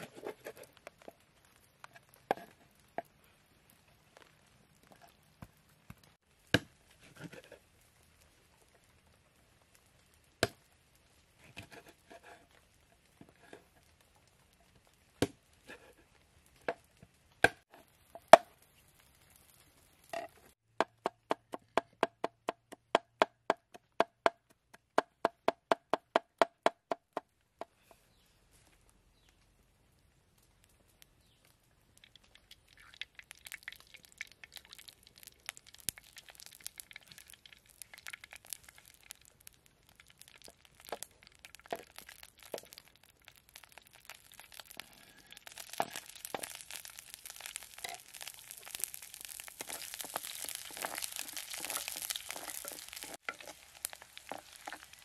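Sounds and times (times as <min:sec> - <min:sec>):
garlic sizzling in pan: 0:31.2 - 0:55.0.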